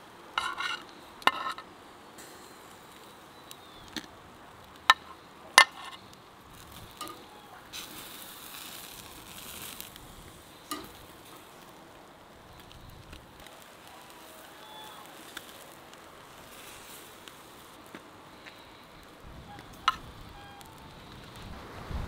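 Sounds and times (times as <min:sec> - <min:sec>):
food sizzling on a grill: 0:00.0 - 0:22.0
metal tongs clicking: 0:10.7 - 0:11.0.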